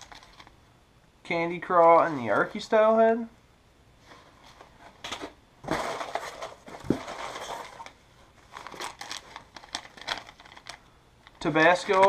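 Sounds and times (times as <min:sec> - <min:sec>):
packaging rustling and crinkling: 0:00.0 - 0:00.5, 0:04.5 - 0:12.0.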